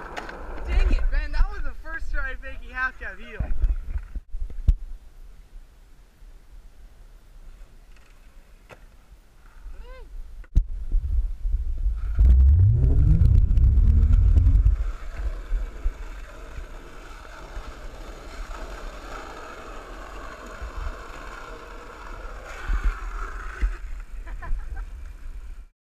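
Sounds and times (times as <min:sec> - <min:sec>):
skateboard wheels rolling on asphalt: 0:00.0 - 0:01.5, 0:11.9 - 0:25.7
heavy low rumble on microphone: 0:10.6 - 0:16.0.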